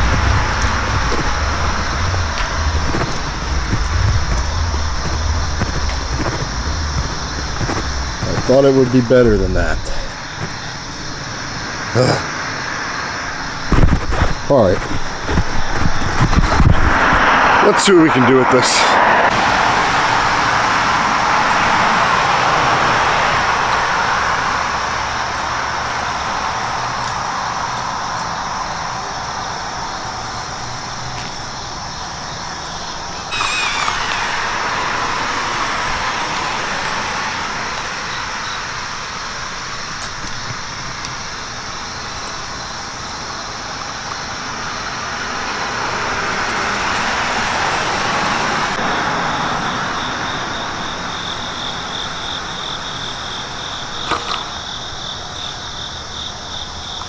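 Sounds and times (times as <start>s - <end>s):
electric motor whine: 0.0s - 8.7s, 33.2s - 38.9s
road traffic: 0.0s - 57.0s.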